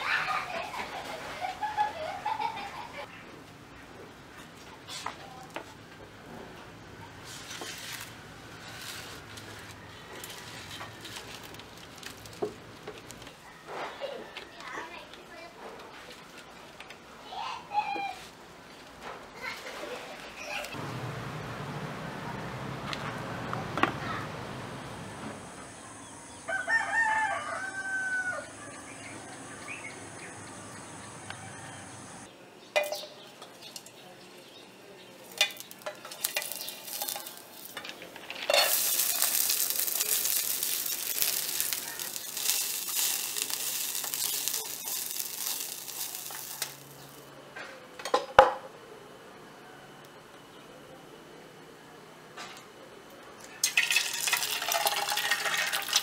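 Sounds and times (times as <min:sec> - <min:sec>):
rooster crowing: 0:26.1 - 0:32.3
garlic sizzling in oil: 0:35.2 - 0:47.3, 0:53.6 - 0:56.0.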